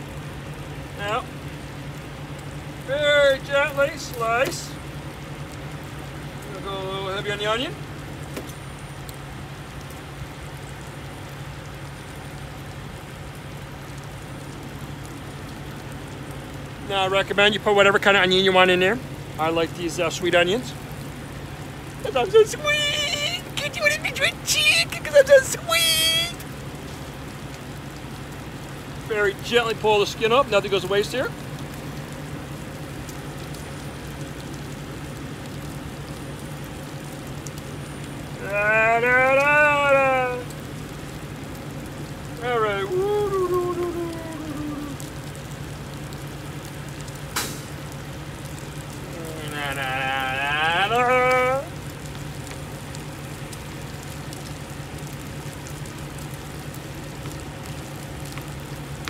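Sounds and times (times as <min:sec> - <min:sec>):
diesel engines idling: 0:00.0 - 0:59.0.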